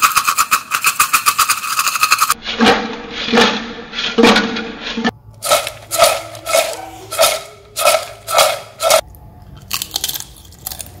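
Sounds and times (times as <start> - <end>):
chips rattling in a metal pot: 5.4 - 9.0.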